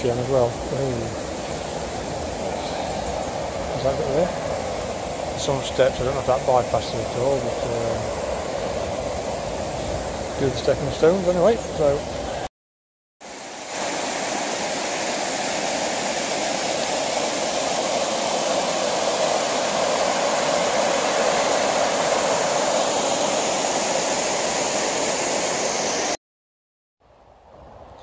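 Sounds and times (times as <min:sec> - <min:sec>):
water rushing over rocks: 0:13.2 - 0:26.2.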